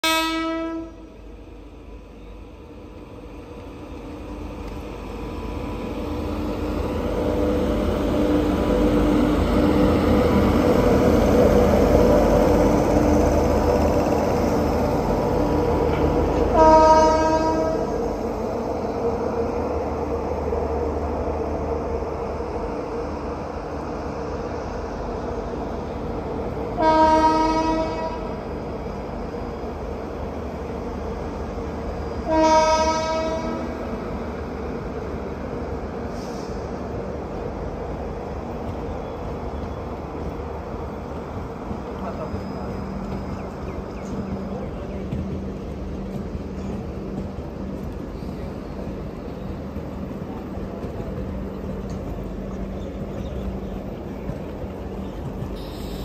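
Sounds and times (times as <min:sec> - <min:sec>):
train horn blasts: 0:00.0 - 0:01.1, 0:16.5 - 0:18.0, 0:26.8 - 0:28.4, 0:32.2 - 0:33.9, 0:55.6 - 0:56.0
train rumble and rail clatter: 0:00.0 - 0:56.0.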